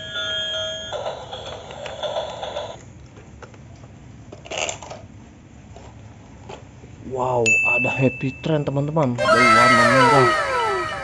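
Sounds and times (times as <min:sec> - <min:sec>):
toy electronic tones: 0:09.2 - 0:11.0.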